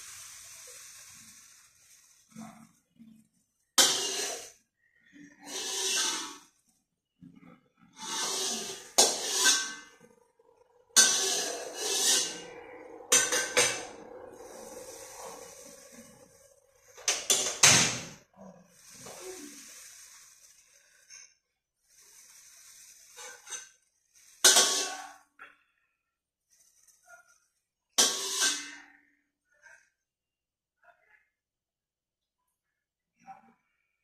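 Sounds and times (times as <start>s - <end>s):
food sizzling in wok: 0.0s - 2.4s, 3.8s - 4.6s, 5.4s - 6.5s, 8.0s - 10.0s, 11.0s - 17.7s, 18.6s - 21.2s, 21.8s - 25.2s, 28.0s - 28.6s
metal spatula scraping wok: 3.8s - 6.6s, 7.3s - 21.3s, 21.9s - 25.3s, 28.0s - 29.0s.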